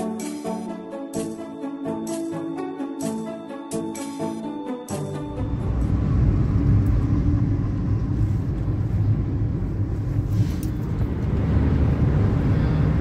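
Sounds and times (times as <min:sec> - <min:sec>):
car engine and road rumble: 0:05.2 - 0:13.0.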